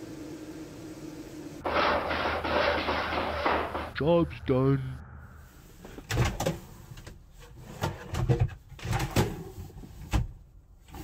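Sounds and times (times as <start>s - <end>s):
wooden drawers opening and shutting: 6.0s - 11.0s.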